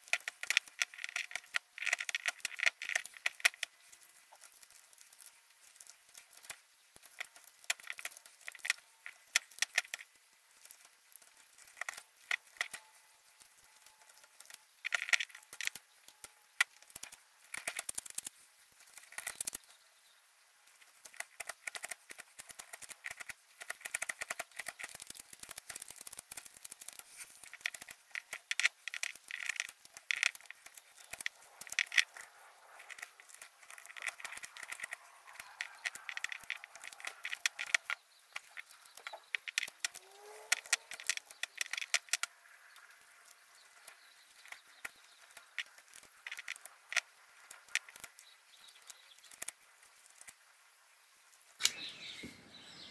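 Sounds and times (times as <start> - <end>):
wood shavings crackling: 0.0 - 50.5, 51.2 - 52.9.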